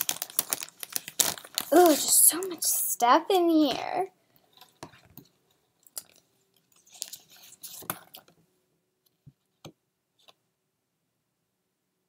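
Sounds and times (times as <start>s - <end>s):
paper rustling: 0.0s - 2.7s, 6.0s - 8.3s.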